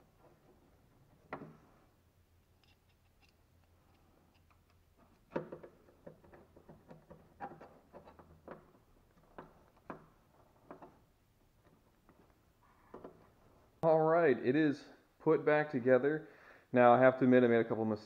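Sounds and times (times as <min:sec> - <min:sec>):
screwdriver clicks and scrapes: 0:02.4 - 0:08.6.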